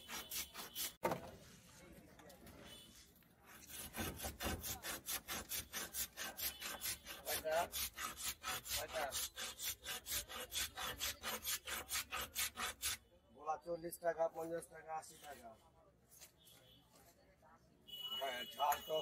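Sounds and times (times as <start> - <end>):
ice shaver rasping: 0.0 - 1.0, 3.7 - 13.0.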